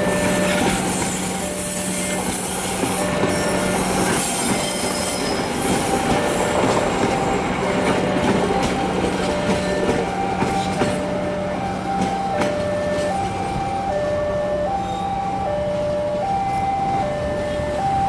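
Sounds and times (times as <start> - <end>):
wheels clicking over rail joints: 0.0 - 14.1
train wheels on rails: 0.0 - 18.0
two-note crossing alarm: 6.0 - 18.0.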